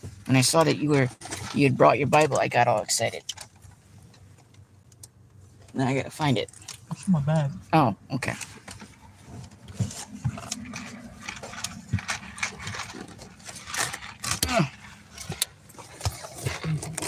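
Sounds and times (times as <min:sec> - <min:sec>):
rustling of rummaging: 0:00.0 - 0:04.6, 0:08.3 - 0:17.0.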